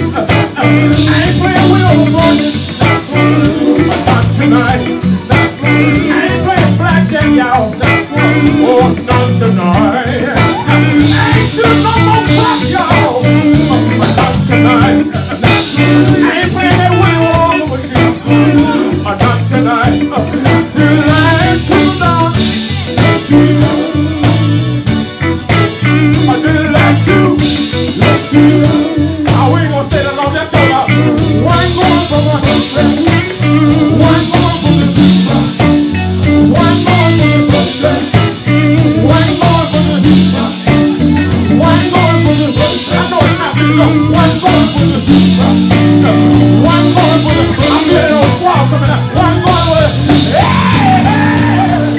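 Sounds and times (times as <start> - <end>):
drum kit: 0.0 - 51.9
electric bass: 0.0 - 51.9
electric guitar: 0.0 - 51.9
man singing into a microphone: 0.0 - 51.9.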